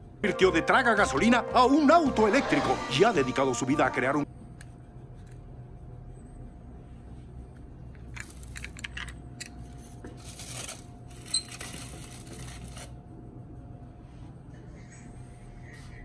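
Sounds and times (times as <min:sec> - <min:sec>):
toy car clicking on foil: 0:10.2 - 0:12.9
aluminium foil crinkling: 0:10.2 - 0:13.0.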